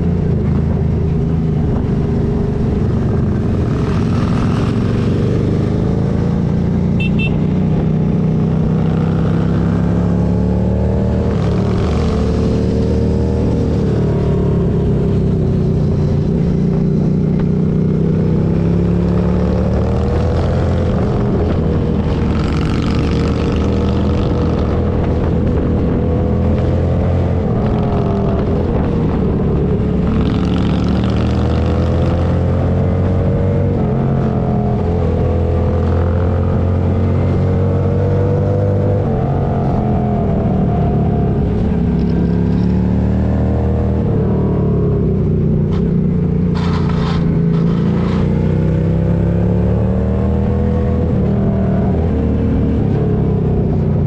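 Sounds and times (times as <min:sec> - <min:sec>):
motorcycle engine running: 0:00.0 - 0:10.1, 0:44.7 - 0:49.0
wind noise rushing: 0:11.1 - 0:42.2.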